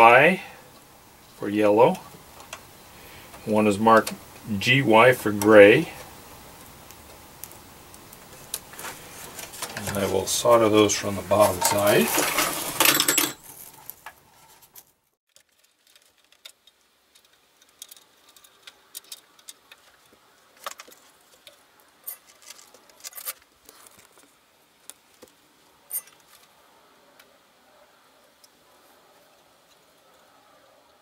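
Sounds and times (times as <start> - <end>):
metal chassis clattering on wood: 11.4 - 13.4.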